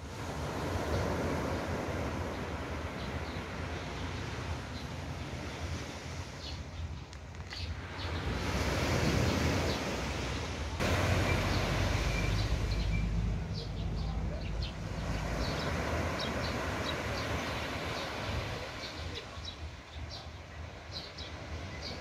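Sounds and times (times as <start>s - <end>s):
waves washing on shore: 0.0s - 22.0s
faint high chirps: 11.2s - 14.2s.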